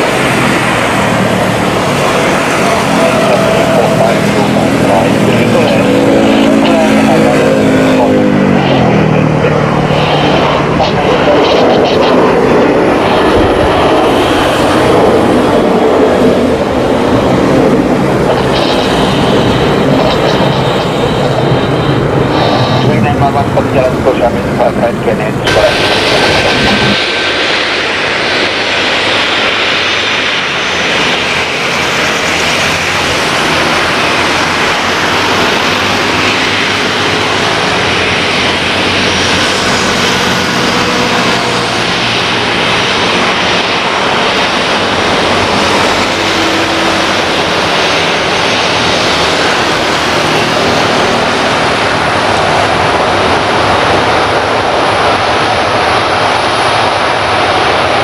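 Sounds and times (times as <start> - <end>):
jet engines running steadily: 0.0 - 58.0.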